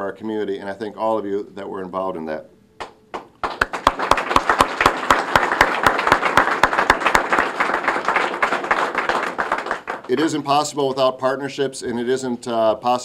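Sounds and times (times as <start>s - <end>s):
audience applauding: 3.1s - 10.4s.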